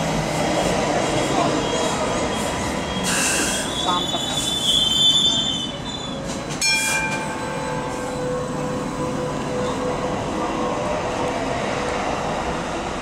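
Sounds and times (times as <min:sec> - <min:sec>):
wheels rumbling on rail: 0:00.0 - 0:13.0
high-pitched wheel squeal: 0:02.3 - 0:06.2.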